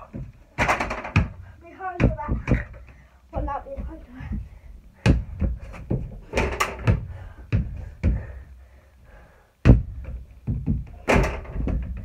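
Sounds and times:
ball hitting backboard and rim: 0:00.1 - 0:01.4, 0:05.1 - 0:08.2
hard thump: 0:09.6 - 0:12.0.

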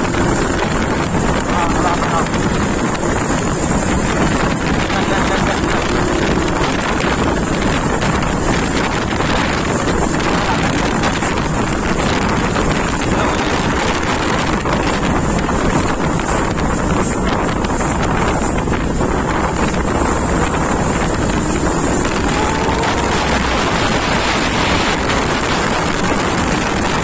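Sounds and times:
wind buffeting microphone: 0:00.0 - 0:27.0.

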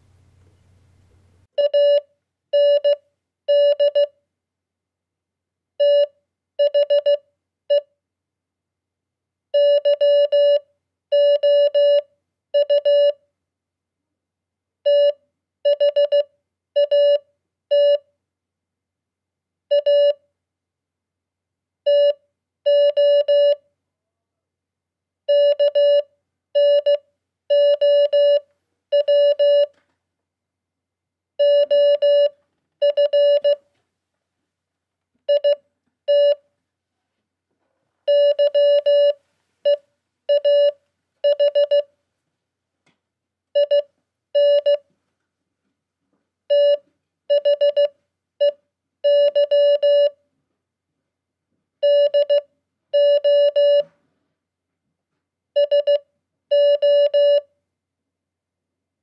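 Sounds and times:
morse code beeps: 0:01.6 - 0:02.0, 0:02.6 - 0:04.1, 0:09.6 - 0:10.6, 0:11.2 - 0:12.0, 0:12.6 - 0:13.2, 0:14.9 - 0:17.2, 0:21.9 - 0:23.6, 0:25.3 - 0:26.0, 0:26.6 - 0:28.4, 0:29.0 - 0:29.7, 0:31.4 - 0:33.6, 0:35.3 - 0:36.4, 0:38.1 - 0:41.9, 0:43.6 - 0:44.8, 0:46.5 - 0:50.2, 0:51.8 - 0:52.4, 0:53.0 - 0:53.9, 0:55.6 - 0:57.4.

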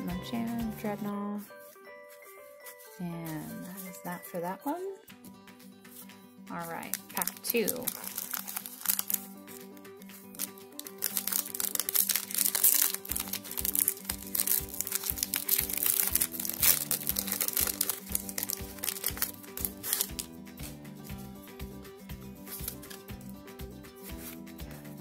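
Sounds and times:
background music with low beat: 0:00.0 - 0:07.2, 0:09.1 - 0:25.0
foil wrapper crinkling: 0:01.6 - 0:04.4, 0:05.9 - 0:21.2, 0:22.4 - 0:23.4.

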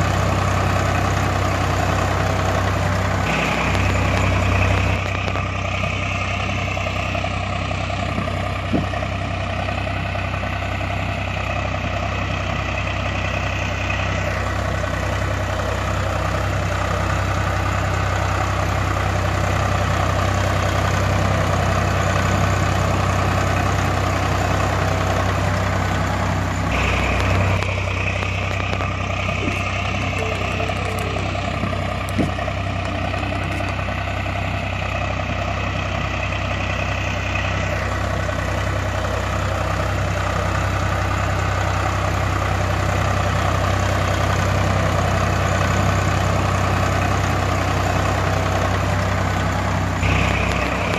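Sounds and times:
tractor diesel engine idling: 0:00.0 - 0:50.9.

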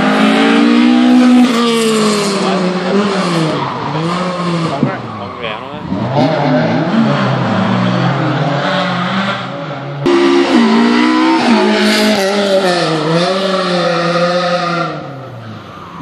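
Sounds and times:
rally car engine revving past: 0:05.8 - 0:15.3.

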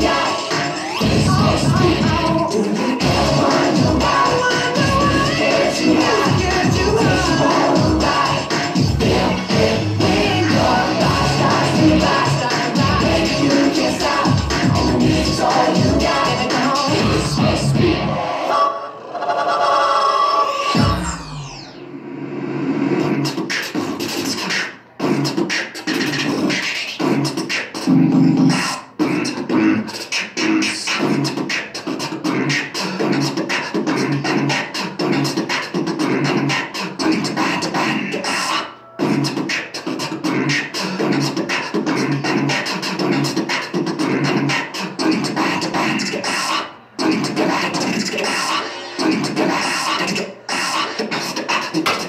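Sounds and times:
electronic music with driving beat: 0:00.0 - 0:18.2, 0:20.5 - 0:21.9, 0:22.8 - 0:29.4
scratch-like vocal sounds: 0:00.0 - 0:18.7, 0:22.8 - 0:52.0.

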